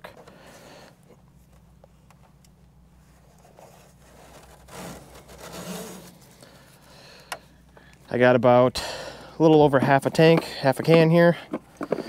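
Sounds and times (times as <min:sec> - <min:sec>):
low steady hum: 0:00.0 - 0:12.0
fuel can scraping and rubbing: 0:03.0 - 0:07.4.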